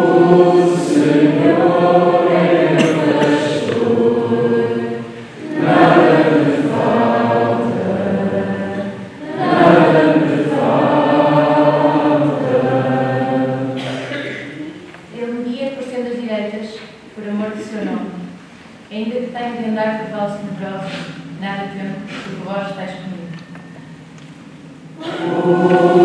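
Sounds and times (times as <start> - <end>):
choir singing: 0.0 - 14.4, 24.9 - 26.0.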